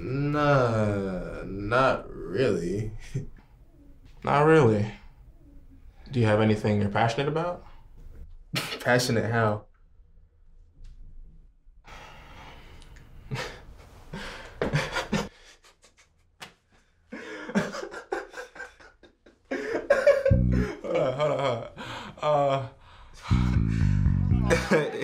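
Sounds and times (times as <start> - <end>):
strong low sound: 20.3 - 21.0, 23.2 - 24.8
person's voice in broken bursts: 23.3 - 25.0.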